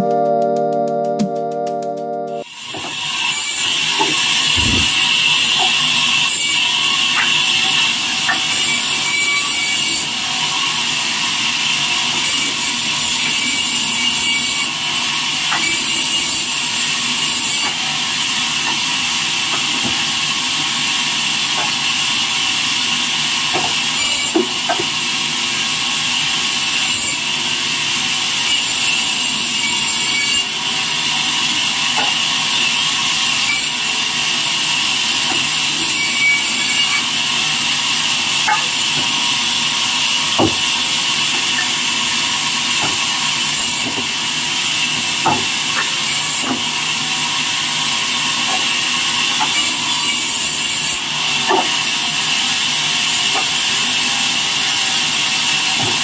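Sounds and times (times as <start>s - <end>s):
band saw blade whining: 2.5s - 10.1s, 35.2s - 44.0s.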